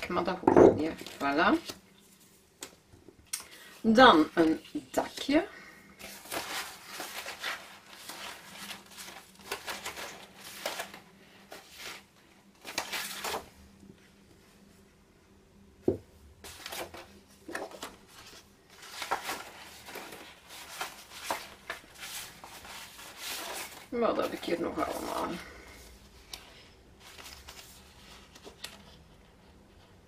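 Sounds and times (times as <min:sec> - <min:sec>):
paper sheets rustling: 0:06.0 - 0:13.6, 0:16.4 - 0:30.0.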